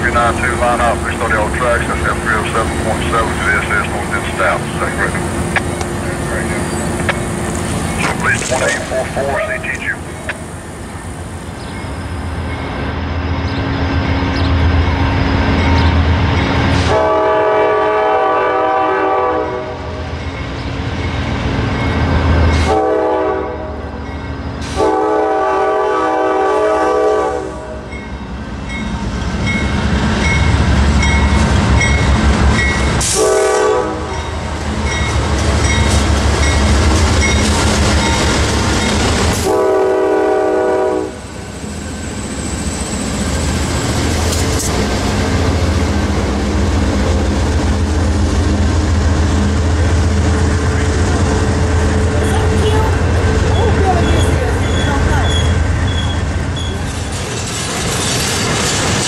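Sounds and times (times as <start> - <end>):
locomotive engines rumbling: 0.0 - 59.0
locomotive horn blasts: 16.8 - 19.9, 22.6 - 23.8, 24.7 - 27.8, 33.0 - 34.2, 39.4 - 41.2.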